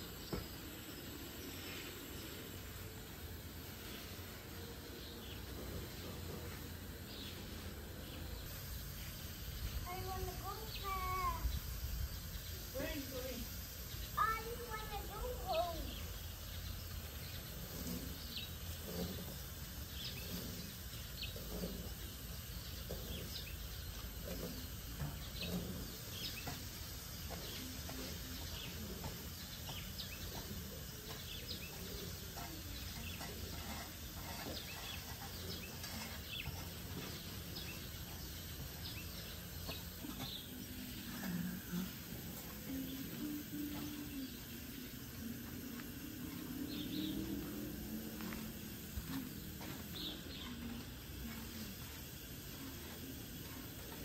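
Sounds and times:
birds chirping: 0:00.0 - 0:54.0
spade scraping sandy soil: 0:31.9 - 0:38.0.

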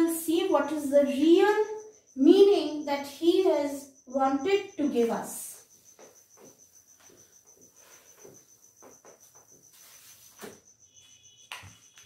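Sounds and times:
insect chirring trill: 0:00.0 - 0:12.0
soft scuffs and knock: 0:05.8 - 0:12.0.

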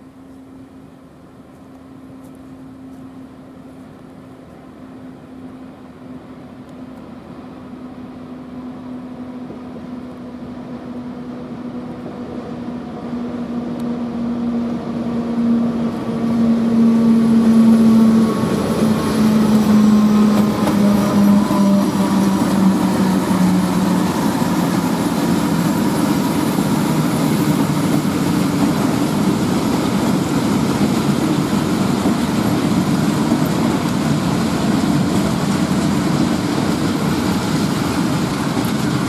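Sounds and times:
diesel locomotive engines droning: 0:00.0 - 0:39.0.

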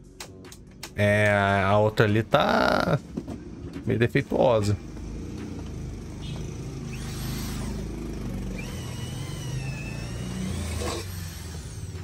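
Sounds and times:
power drill whining: 0:04.9 - 0:12.0.

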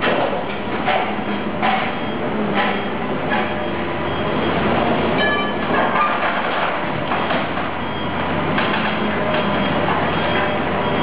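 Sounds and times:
heavy machinery grinding scrap metal: 0:04.8 - 0:10.6.

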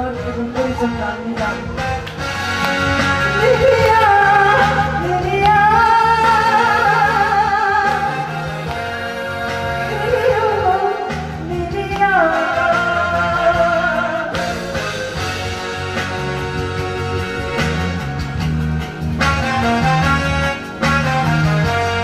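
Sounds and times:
woman singing: 0:00.0 - 0:02.0, 0:03.3 - 0:08.8, 0:09.8 - 0:14.6
backing track with bass line: 0:00.0 - 0:22.0.

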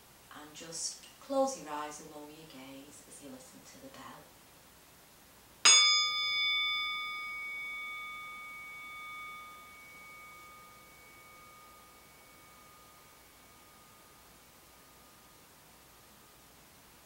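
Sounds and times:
meditation bell ringing: 0:05.6 - 0:16.5.

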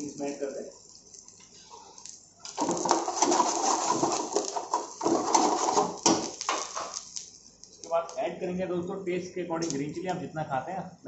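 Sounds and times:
oil sizzling: 0:00.0 - 0:08.2.

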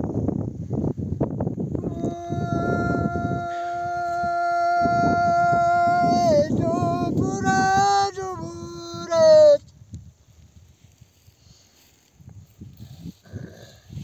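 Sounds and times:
man singing unaccompanied: 0:01.8 - 0:09.6.

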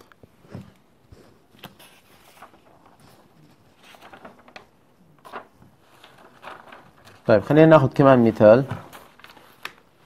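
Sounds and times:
paper rustling: 0:00.4 - 0:10.0.

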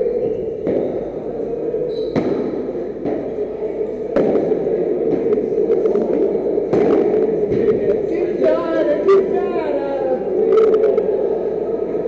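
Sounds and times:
racket hitting ball: 0:02.2 - 0:03.3.

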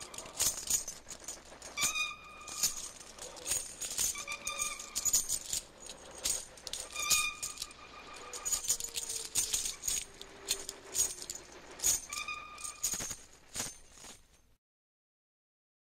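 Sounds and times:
metal chains rattling: 0:00.0 - 0:14.5.

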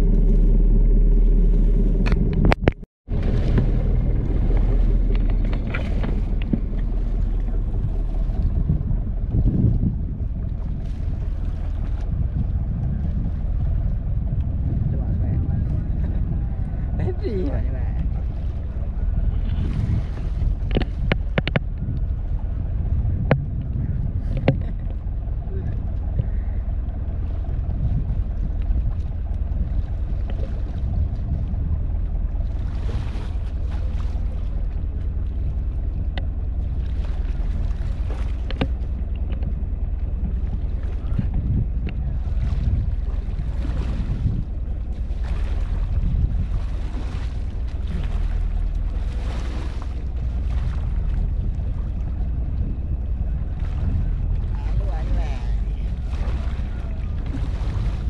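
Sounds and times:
wind on microphone: 0:00.0 - 0:58.0
water washing around a boat: 0:03.1 - 0:58.0.

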